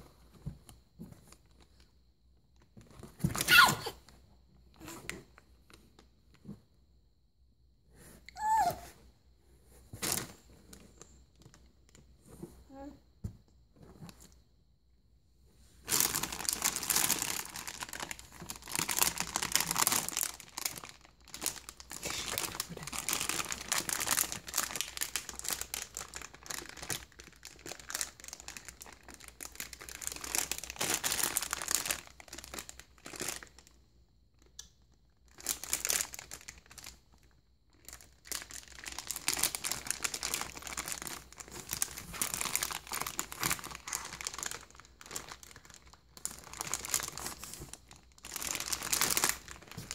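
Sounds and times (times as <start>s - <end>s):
foil bag crinkling: 15.8s - 33.7s, 35.3s - 37.0s, 37.8s - 49.9s.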